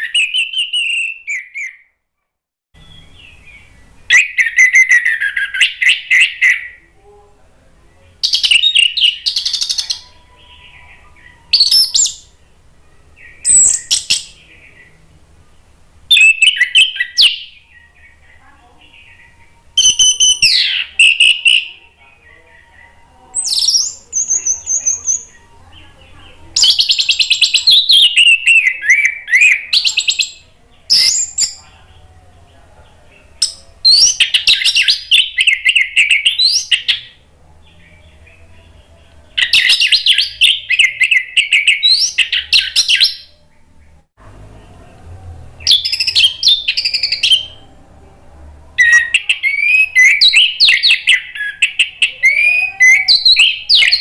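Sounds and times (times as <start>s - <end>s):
thrush singing whistled notes: 0.0s - 1.9s, 13.2s - 15.0s, 16.1s - 18.4s, 19.0s - 25.8s, 48.8s - 54.0s.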